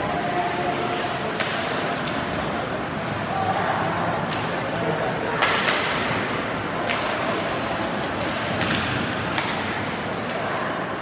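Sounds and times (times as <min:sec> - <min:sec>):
rink background noise: 0:00.0 - 0:11.0
sticks and puck striking: 0:05.4 - 0:06.1, 0:06.8 - 0:07.2, 0:08.5 - 0:10.5.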